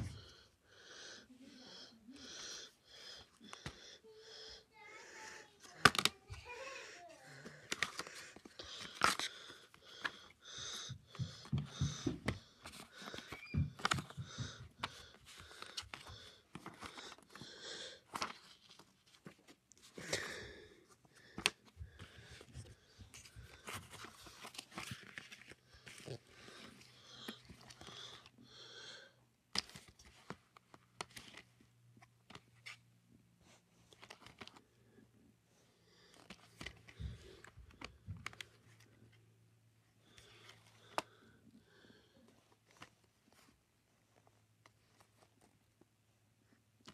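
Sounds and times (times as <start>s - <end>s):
plastic cases clicking and rustling: 5.7s - 6.2s, 7.5s - 10.2s, 11.5s - 17.4s.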